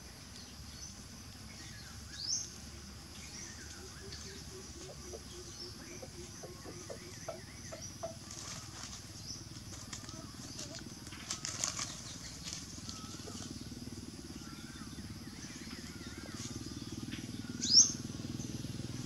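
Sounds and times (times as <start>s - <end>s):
birds calling: 0.0s - 19.0s
rustling of dry leaves: 0.0s - 19.0s
steady low hum: 0.0s - 19.0s.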